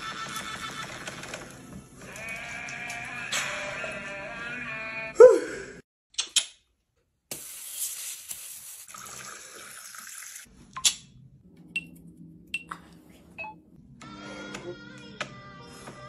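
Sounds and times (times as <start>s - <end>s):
sharp click: 6.2s - 6.6s
soda pouring and fizzing: 7.3s - 10.5s.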